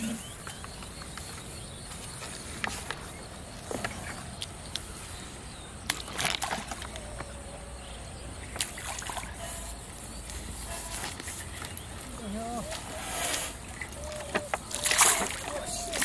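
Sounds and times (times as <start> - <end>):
shallow water sloshing and splashing: 5.9 - 7.1, 12.7 - 16.0.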